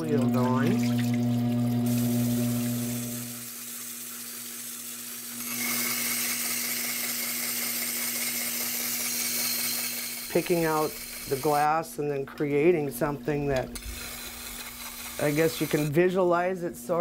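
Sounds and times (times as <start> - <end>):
glass grinder humming: 0.0 - 11.8, 13.6 - 15.9
glass grinding hiss and whine: 0.4 - 11.7.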